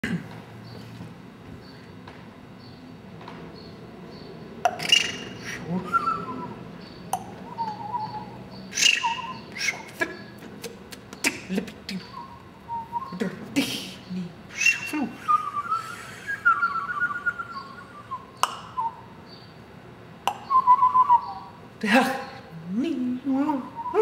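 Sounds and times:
mouth clicks: 0:04.6 - 0:06.4, 0:07.1 - 0:14.0, 0:17.2 - 0:19.0, 0:20.2 - 0:21.4
man making whistle-like vocal tones: 0:04.7 - 0:06.6, 0:07.2 - 0:19.1, 0:20.3 - 0:21.6, 0:23.5 - 0:24.0.

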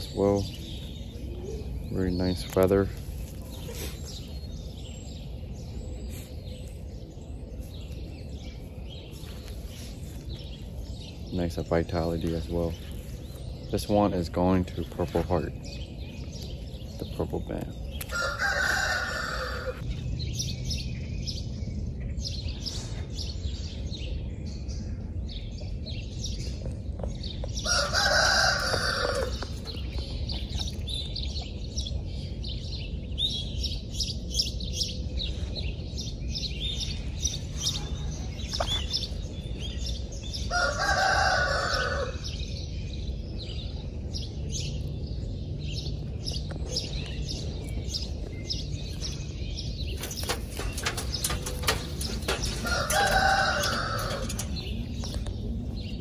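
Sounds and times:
rooster crowing: 0:18.1 - 0:19.8, 0:27.6 - 0:29.4, 0:40.5 - 0:42.2, 0:52.3 - 0:54.5
steady low hum: 0:42.1 - 0:56.0
faint clicks and rustles: 0:50.0 - 0:55.4.

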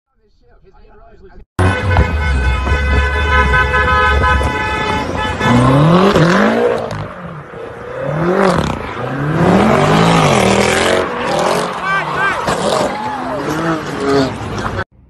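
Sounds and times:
car horn: 0:01.6 - 0:07.2
car engines revving: 0:01.6 - 0:14.9.

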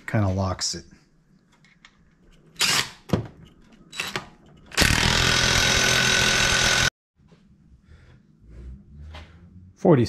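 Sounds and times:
power tool running: 0:04.8 - 0:06.9.

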